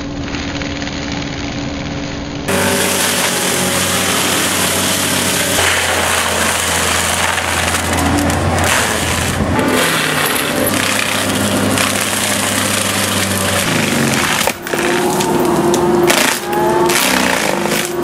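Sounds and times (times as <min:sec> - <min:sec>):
low machine hum: 0:02.2 - 0:18.0
steady machine whine: 0:02.2 - 0:18.0
mulcher grinding wood: 0:02.5 - 0:18.0.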